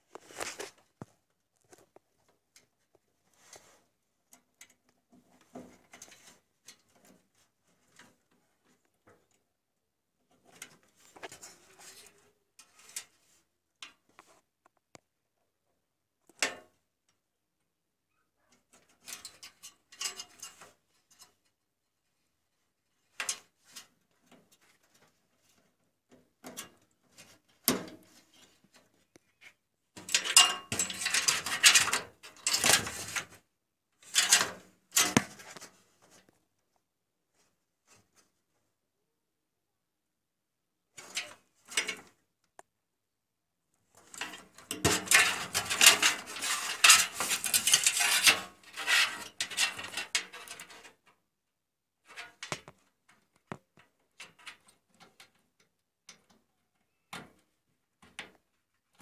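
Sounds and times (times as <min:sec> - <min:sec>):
wires rustling and scraping: 0:00.0 - 0:09.4, 0:10.3 - 0:14.8, 0:18.6 - 0:22.2, 0:22.8 - 0:36.4, 0:43.9 - 0:51.1.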